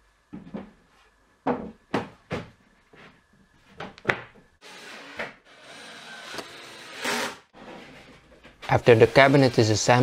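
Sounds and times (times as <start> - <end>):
cordless drill driving screw: 5.5 - 7.4.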